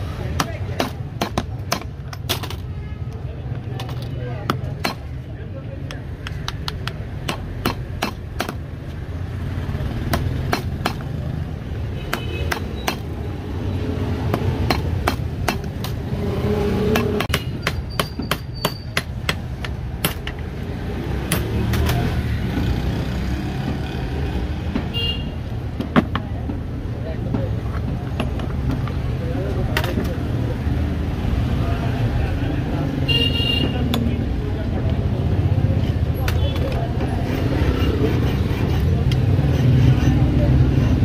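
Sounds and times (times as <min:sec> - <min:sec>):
hammer striking iron padlock: 0:16.9 - 0:20.4, 0:21.3 - 0:22.0.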